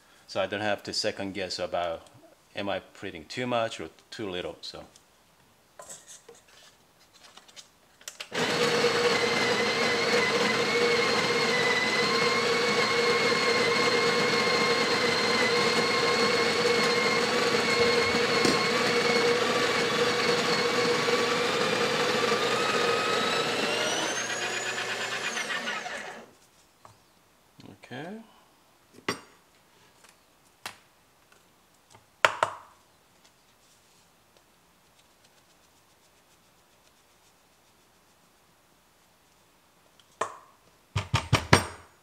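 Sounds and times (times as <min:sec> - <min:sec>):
water pump humming: 0:08.4 - 0:26.3.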